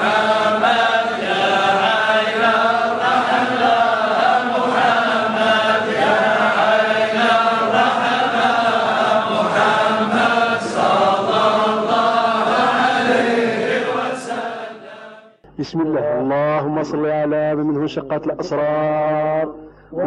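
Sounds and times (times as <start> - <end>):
voices chanting: 0.0 - 15.4.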